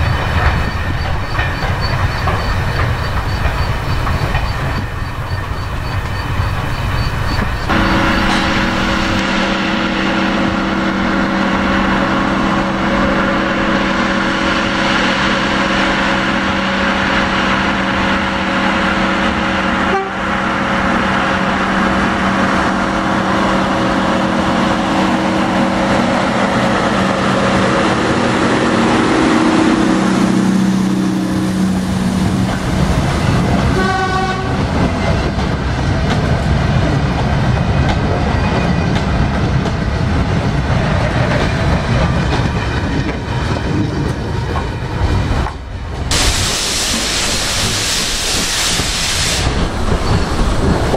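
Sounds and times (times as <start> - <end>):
wagons clattering over rail joints: 0.0 - 8.7
diesel locomotive engine: 0.0 - 50.9
locomotive horn toot: 7.7 - 17.8, 18.5 - 20.6, 33.7 - 34.7.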